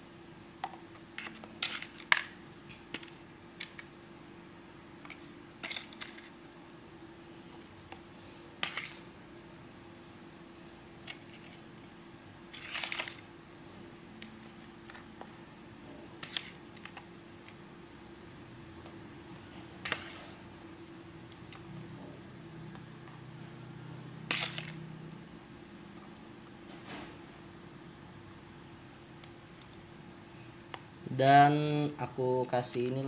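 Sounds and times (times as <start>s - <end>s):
faint steady hum: 0.0s - 33.0s
plastic scoop clicking and scraping: 5.0s - 6.3s, 12.5s - 13.3s, 16.2s - 17.0s, 24.3s - 24.8s.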